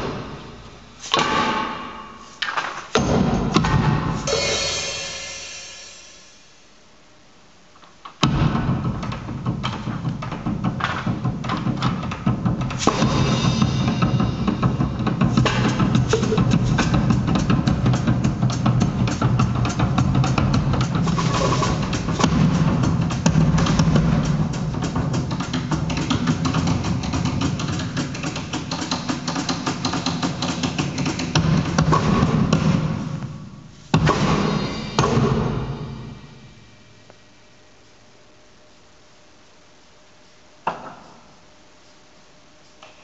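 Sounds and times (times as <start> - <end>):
drum kit drumming: 0.0 - 6.4, 8.1 - 36.8
loud drum strikes ringing: 3.0 - 6.4, 8.2 - 33.2, 33.9 - 36.8
live band music: 12.8 - 26.4
upright double bass: 14.8 - 25.2.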